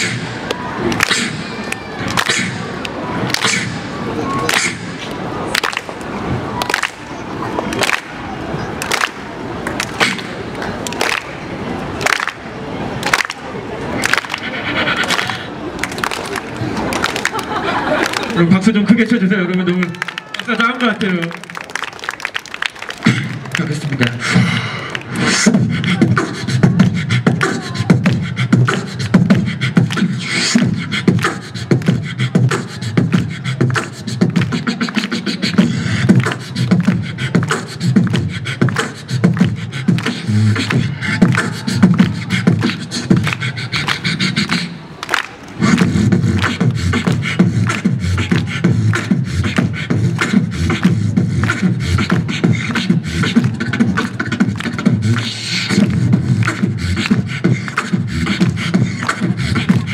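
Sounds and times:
man beatboxing into microphone: 0:00.0 - 0:06.0, 0:09.8 - 0:10.4, 0:14.0 - 0:15.6, 0:18.2 - 0:21.5, 0:22.9 - 0:45.0, 0:45.6 - 0:59.9.

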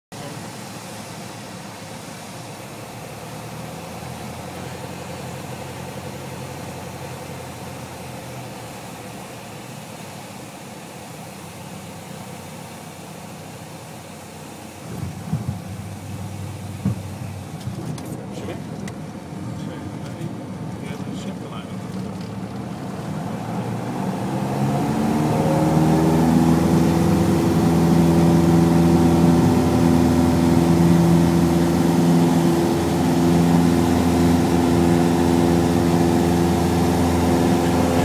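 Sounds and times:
propeller plane engine droning: 0:00.1 - 0:38.0
wheels thumping on runway: 0:14.8 - 0:19.0.

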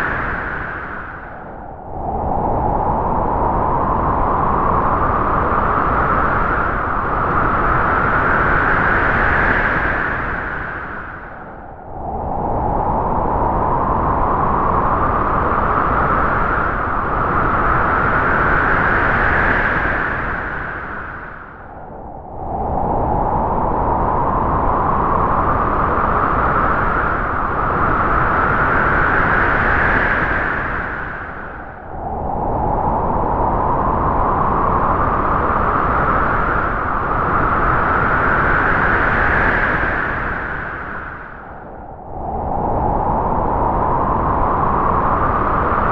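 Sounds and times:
howling wind gust: 0:00.0 - 0:45.9.

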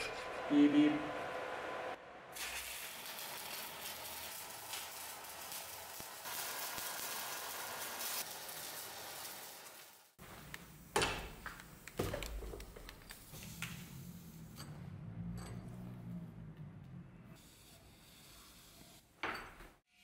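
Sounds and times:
welding arc hissing: 0:02.4 - 0:14.5
metal knocks and clinks: 0:14.5 - 0:16.2, 0:19.2 - 0:19.8.

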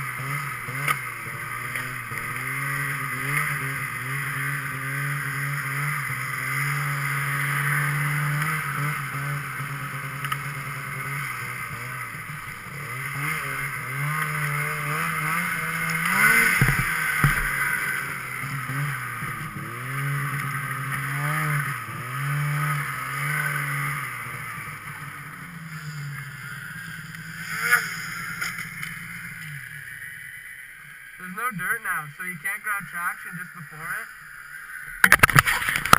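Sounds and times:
snowmobile engine revving: 0:00.0 - 0:35.9
snowmobile landing thumps: 0:15.0 - 0:19.6, 0:35.0 - 0:35.9.

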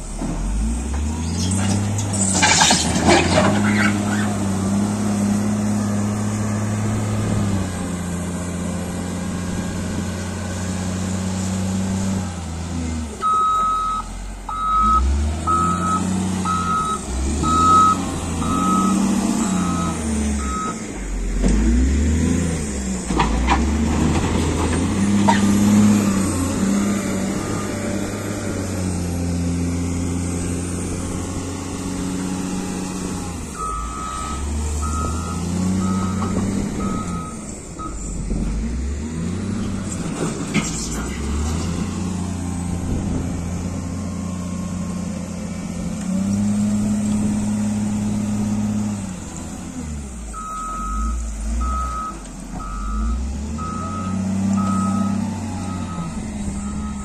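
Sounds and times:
loader diesel engine revving: 0:00.0 - 0:57.0
reversing alarm beeps: 0:13.2 - 0:20.8, 0:33.6 - 0:38.2, 0:50.4 - 0:57.0.

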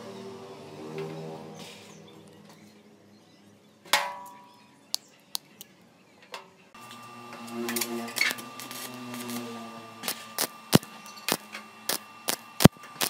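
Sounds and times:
metallic clank of steel rods: 0:03.9 - 0:04.5
steady hum with held tones: 0:06.7 - 0:13.0.

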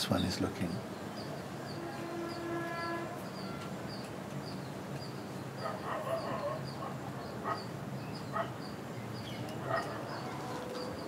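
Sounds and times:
dog barking: 0:05.6 - 0:07.7, 0:08.3 - 0:08.6, 0:09.6 - 0:10.4.

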